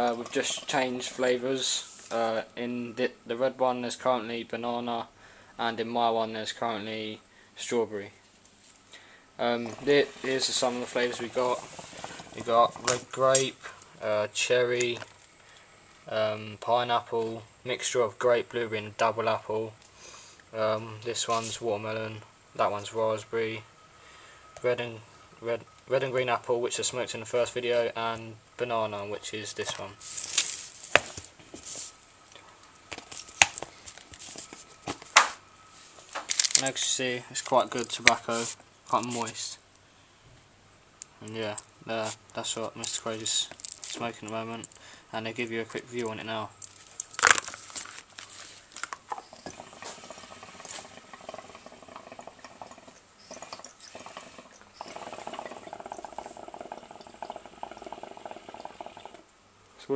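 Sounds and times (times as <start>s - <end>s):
hookah water bubbling: 9.5s - 14.0s, 49.0s - 59.3s
plastic tubs rustling: 32.9s - 36.7s, 42.1s - 44.8s, 46.0s - 50.0s.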